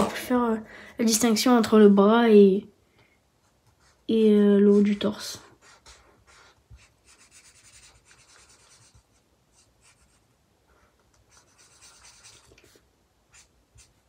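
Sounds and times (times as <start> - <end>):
marker nib rubbing on paper: 3.4 - 14.0.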